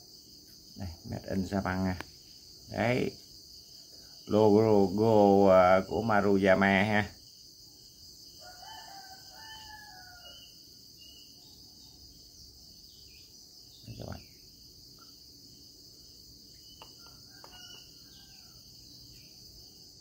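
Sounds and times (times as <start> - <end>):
high insect chirring: 0.0 - 20.0
rooster crowing: 8.4 - 10.6, 16.8 - 18.9.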